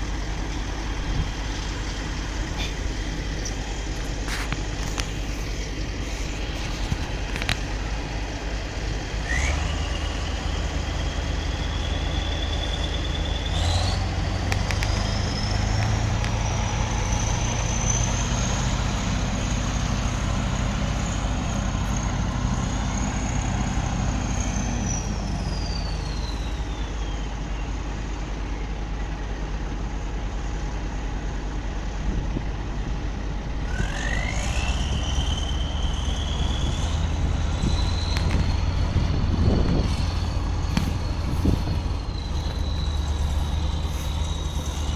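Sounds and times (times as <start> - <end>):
tractor diesel engine revving: 0.0 - 44.9
high whistle: 33.7 - 36.8, 39.4 - 44.9.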